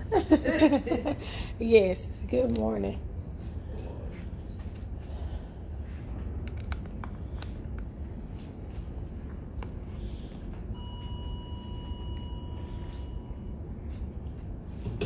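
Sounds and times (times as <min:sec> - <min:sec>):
low steady hum: 0:00.0 - 0:15.0
elevator signal beep: 0:10.8 - 0:13.9.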